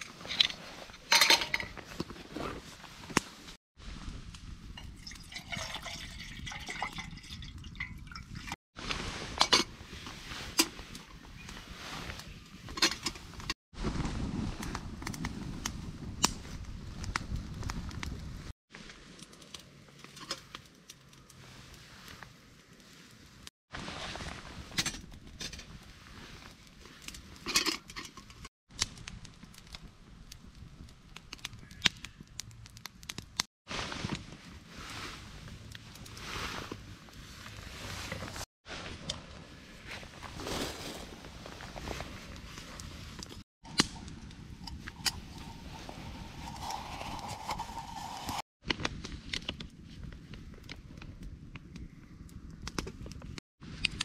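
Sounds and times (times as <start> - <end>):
metal pot clattering: 1.1 - 1.8
water pouring into pot: 4.8 - 8.6
campfire crackling and popping: 13.3 - 23.5, 28.7 - 34.2, 41.9 - 54.0.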